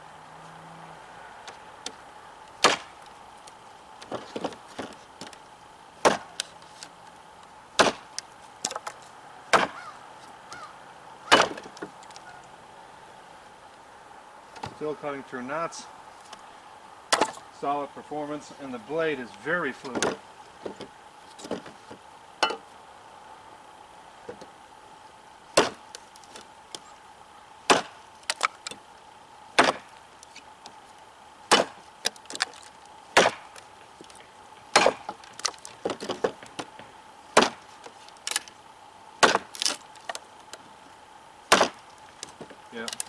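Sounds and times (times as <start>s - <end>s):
knife chopping wood: 2.6s - 3.0s, 4.0s - 5.4s, 6.0s - 6.5s, 7.8s - 9.9s, 11.3s - 11.9s, 17.1s - 17.4s, 19.8s - 22.6s, 25.5s - 26.5s, 27.7s - 28.8s, 29.6s - 29.9s, 31.5s - 33.6s, 34.7s - 38.4s, 39.2s - 40.2s, 41.5s - 43.0s.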